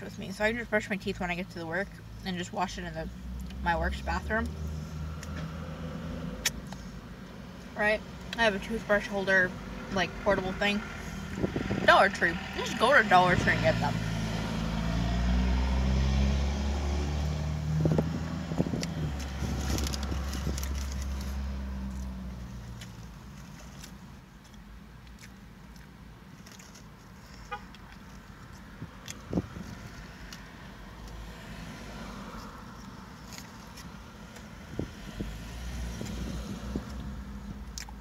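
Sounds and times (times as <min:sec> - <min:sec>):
vehicle engine humming: 0:00.0 - 0:38.0
person chewing: 0:22.7 - 0:30.4.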